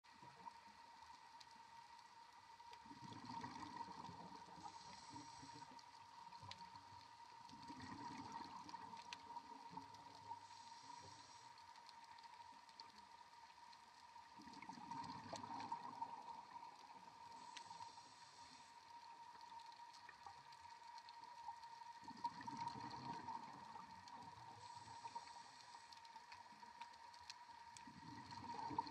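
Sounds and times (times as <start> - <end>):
scuba regulator breathing: 4.6 - 5.8, 10.4 - 11.6, 17.3 - 18.8, 24.6 - 26.0.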